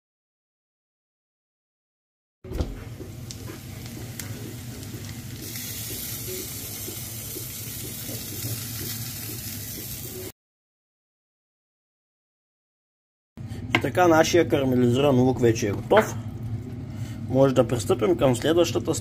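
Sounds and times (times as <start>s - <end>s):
onions sizzling in a pan: 3.2s - 10.3s.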